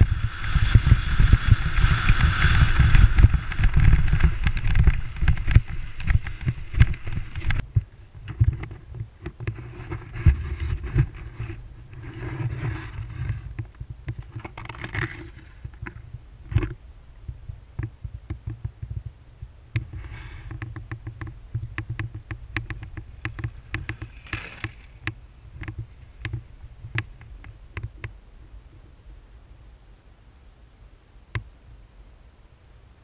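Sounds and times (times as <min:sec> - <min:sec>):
clacks and rattles over stones: 0:00.0 - 0:16.8, 0:19.8 - 0:28.1
bike low rumble: 0:00.0 - 0:30.0
tyre crunch on gravel: 0:01.9 - 0:07.6, 0:23.0 - 0:25.0.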